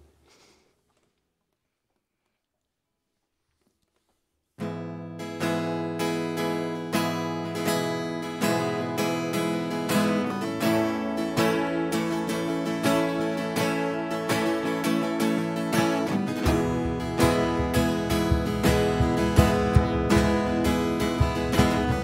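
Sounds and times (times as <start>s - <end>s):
acoustic guitar strumming chords: 4.6s - 22.0s.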